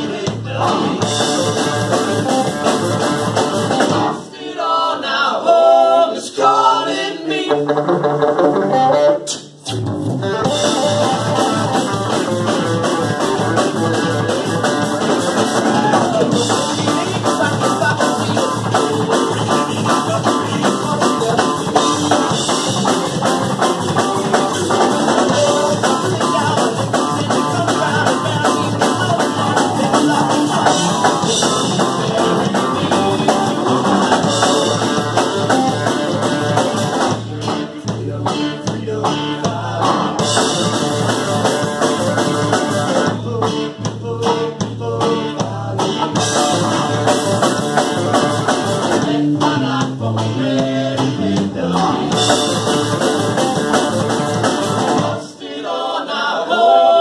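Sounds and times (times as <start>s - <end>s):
live band playing metal bluegrass: 0.0s - 4.3s, 7.2s - 55.2s.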